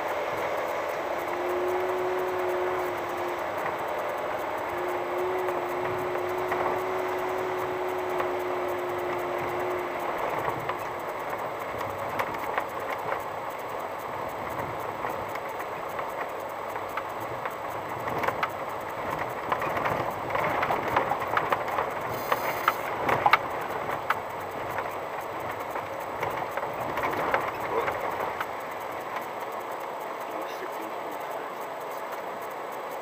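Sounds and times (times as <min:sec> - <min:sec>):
steady hum: 0:00.0 - 0:33.0
tyres rumbling on gravel: 0:00.0 - 0:33.0.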